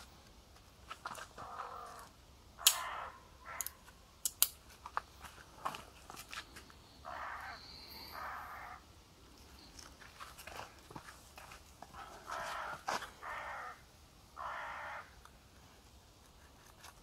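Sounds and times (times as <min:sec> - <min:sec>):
sharp crack: 0:02.6 - 0:03.0.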